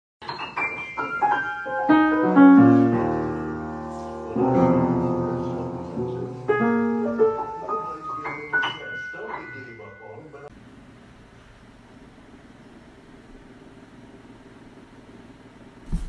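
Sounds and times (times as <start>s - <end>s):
piano note clusters: 0.2s - 10.5s.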